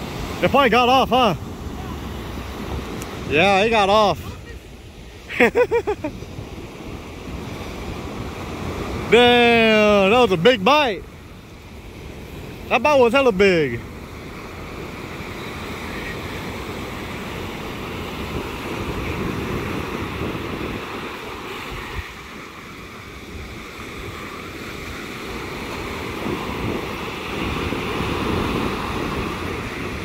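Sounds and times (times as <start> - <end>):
ocean surf breaking: 0.0 - 30.0
wind rumbling on microphone: 1.3 - 5.2, 13.8 - 30.0.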